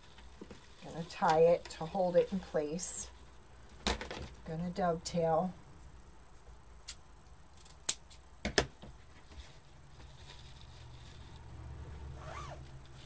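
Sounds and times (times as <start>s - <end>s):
ribbon rustling: 9.0s - 11.6s.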